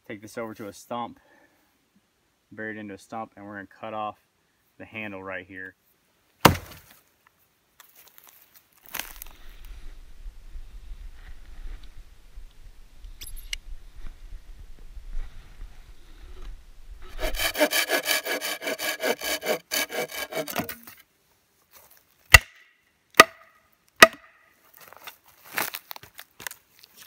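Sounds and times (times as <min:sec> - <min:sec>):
hand saw cutting wood: 0:17.0 - 0:21.0.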